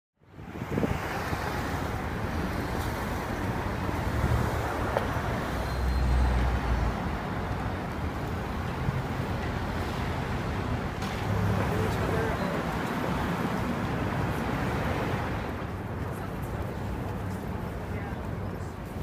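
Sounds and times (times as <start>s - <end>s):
passing vehicles: 0.2s - 19.0s.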